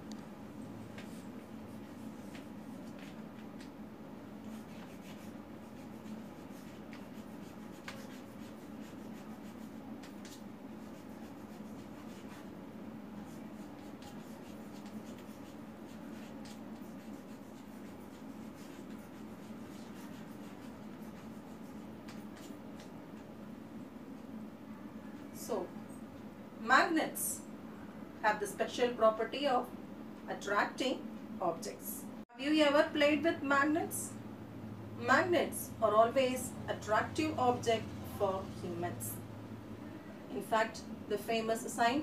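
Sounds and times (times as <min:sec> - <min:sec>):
steady low hum: 0:00.0 - 0:42.0
chalk scratching on blackboard: 0:04.4 - 0:12.5, 0:13.2 - 0:22.9.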